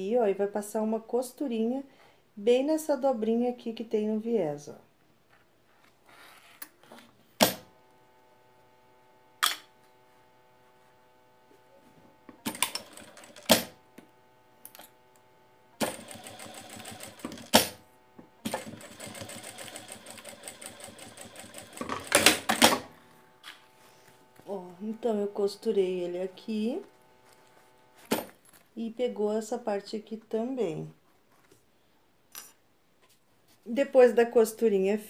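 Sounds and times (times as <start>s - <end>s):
sewing machine stitching: 12.4s - 13.8s, 15.8s - 17.8s, 18.4s - 22.9s
sewing machine clicks: 12.5s - 13.8s, 15.8s - 17.8s.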